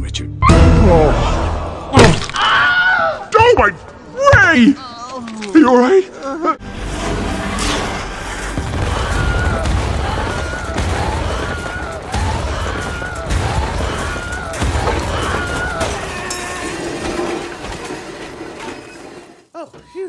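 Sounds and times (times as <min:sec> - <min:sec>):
film score: 0:00.0 - 0:20.0
explosions: 0:06.8 - 0:16.2.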